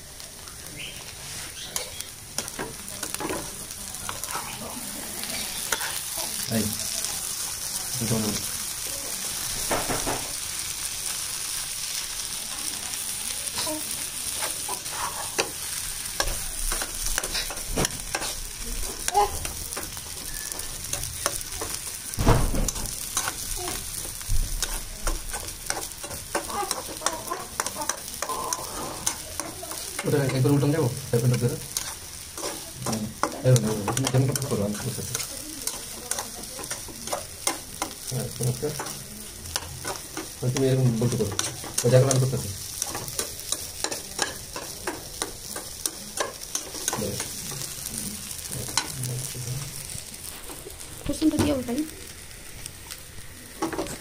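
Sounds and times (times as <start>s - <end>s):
frying sizzle: 0.0s - 54.0s
spatula scraping a pan: 1.0s - 6.4s, 13.6s - 22.0s, 22.7s - 50.7s.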